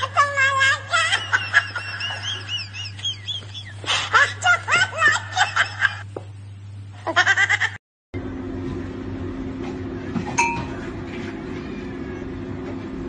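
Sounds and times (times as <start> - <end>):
steady low hum: 0.0 - 7.6, 8.2 - 13.0
person giggling: 0.9 - 6.1
person snickering: 1.4 - 6.0.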